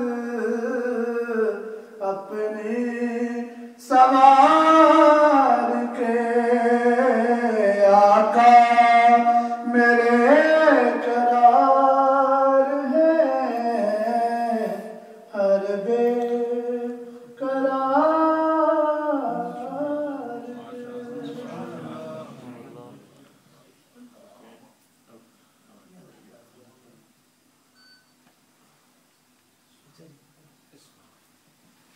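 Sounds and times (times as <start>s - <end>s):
man singing into a microphone: 0.0s - 21.5s.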